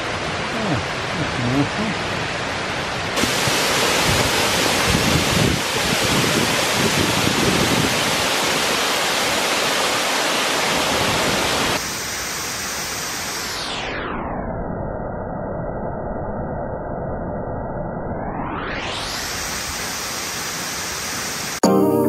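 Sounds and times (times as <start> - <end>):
waterfall rushing into a pool: 0.0 - 13.7, 19.1 - 21.6.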